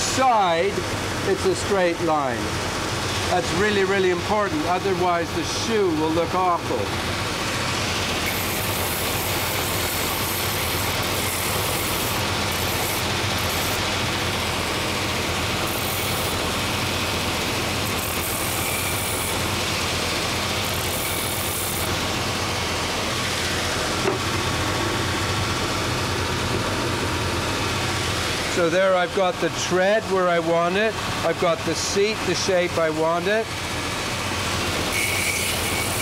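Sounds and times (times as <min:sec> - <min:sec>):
motor hum: 0:00.0 - 0:36.0
belt sander grinding wood: 0:06.8 - 0:24.6, 0:33.6 - 0:36.0.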